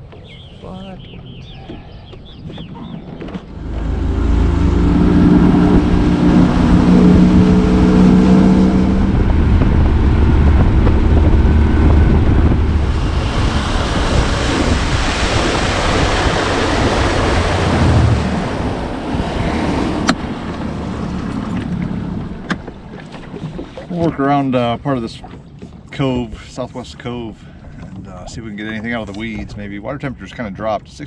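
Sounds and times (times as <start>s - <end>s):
wind on microphone: 0.0s - 24.6s
outboard motor running: 1.4s - 29.7s.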